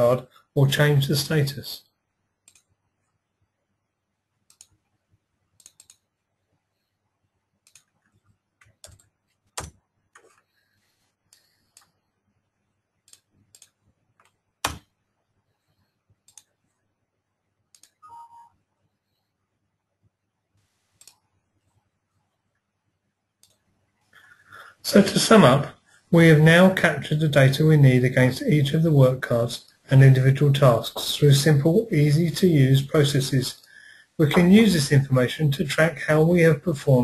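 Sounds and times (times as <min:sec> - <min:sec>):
computer mouse clicks: 0:02.4 - 0:02.7, 0:04.5 - 0:04.8, 0:05.6 - 0:06.1, 0:07.6 - 0:10.5, 0:13.0 - 0:14.9, 0:16.2 - 0:16.6, 0:17.7 - 0:18.0, 0:21.0 - 0:21.3, 0:23.4 - 0:23.7
computer alert tone: 0:18.0 - 0:18.5.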